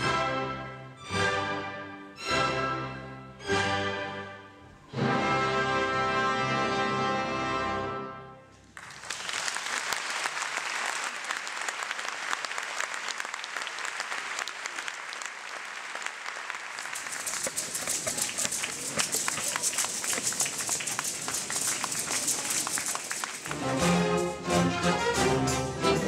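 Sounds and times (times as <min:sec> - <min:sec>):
audience applause: 0:08.8 - 0:26.0.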